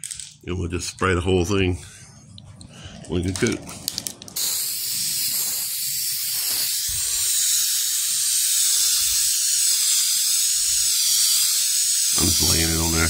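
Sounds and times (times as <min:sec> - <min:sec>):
aerosol can spraying hiss: 0:04.4 - 0:13.0.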